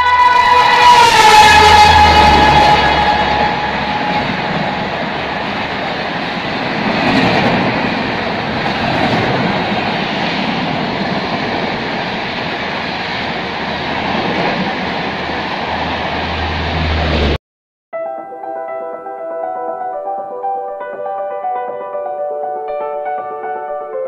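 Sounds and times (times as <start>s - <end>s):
train coaches rushing past: 0.0s - 17.4s.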